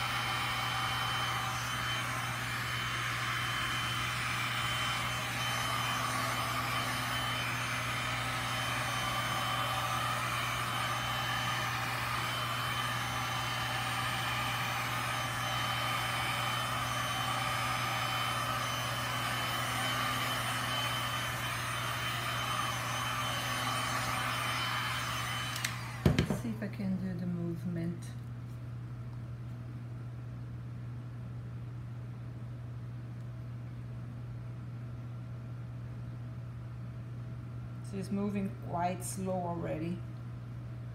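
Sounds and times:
heat gun blowing with whine: 0.0s - 26.7s.

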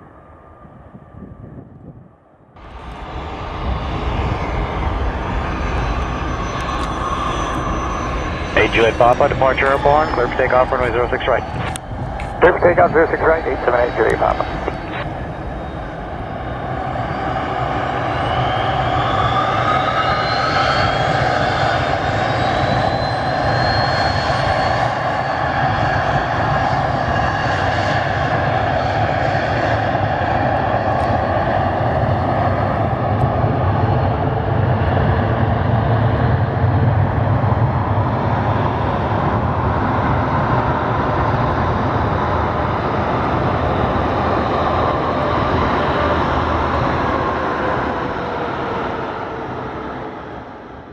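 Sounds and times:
jet engines spooling up: 2.6s - 28.0s.

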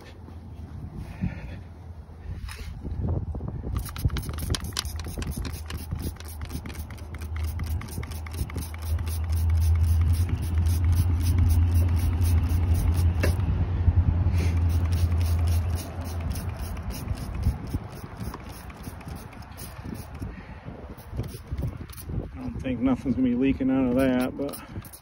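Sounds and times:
trigger sprayer squirting: 3.7s - 13.5s, 14.4s - 20.3s, 21.0s - 22.2s, 23.9s - 25.0s
low rumble: 9.6s - 17.6s.

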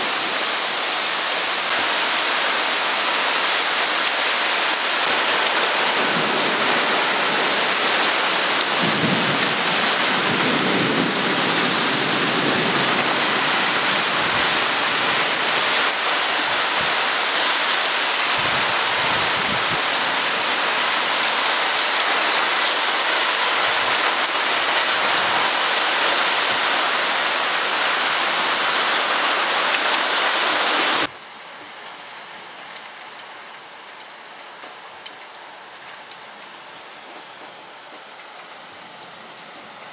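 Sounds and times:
heavy rain pouring: 0.0s - 39.9s
rain behind a window: 0.0s - 39.9s
thunder rumbling: 5.1s - 26.7s.

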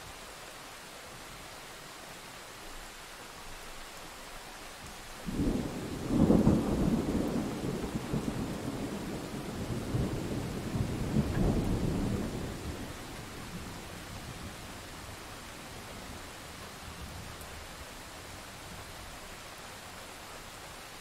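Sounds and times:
steady rain: 0.0s - 21.0s
thunder clap and rumbles: 5.3s - 13.6s.

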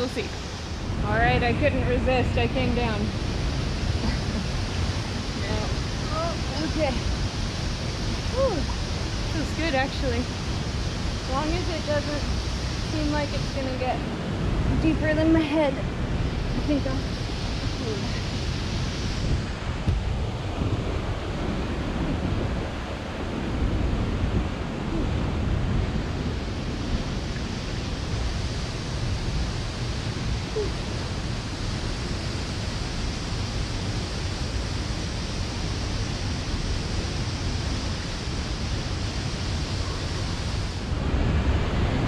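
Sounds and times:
waterfall roaring: 0.0s - 42.0s.

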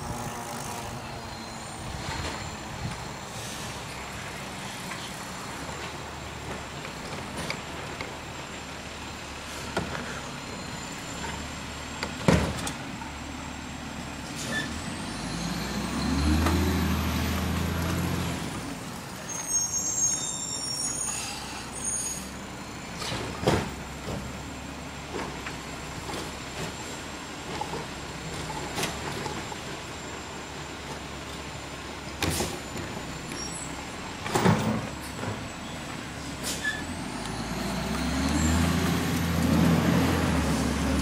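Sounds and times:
garbage truck engine revving: 13.8s - 19.0s, 22.9s - 41.0s.

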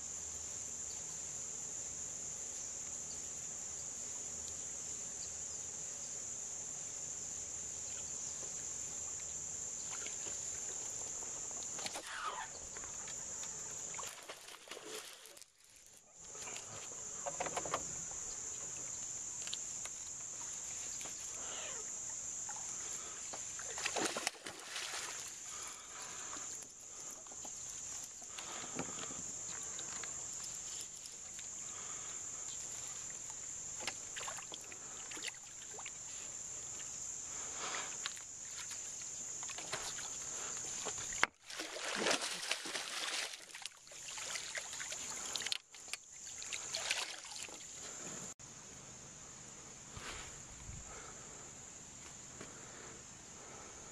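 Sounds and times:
insect chorus: 0.0s - 53.9s
fish splashing: 23.6s - 25.5s, 41.1s - 45.6s, 46.2s - 47.7s.

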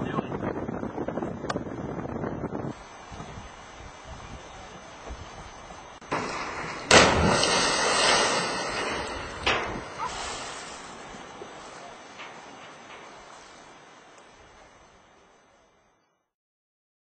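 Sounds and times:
water spraying and falling: 2.9s - 14.8s
sudden rush of noise: 6.0s - 13.8s
loud splash into water: 6.1s - 11.3s.

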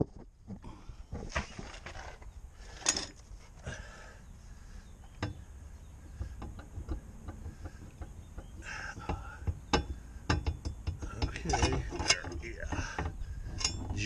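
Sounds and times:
metallic knocks and clunks: 5.0s - 14.0s.

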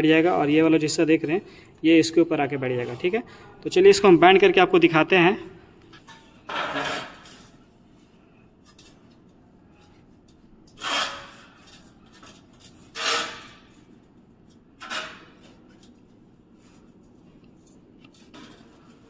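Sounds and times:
metal cable tray scraping on concrete: 6.5s - 7.6s, 10.8s - 11.9s, 12.8s - 13.7s.

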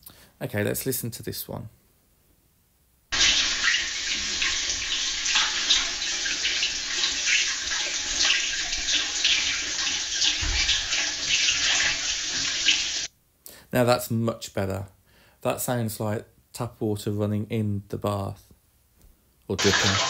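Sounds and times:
tap water running into bath: 3.1s - 13.1s, 19.6s - 20.0s
low thump: 10.4s - 10.8s.

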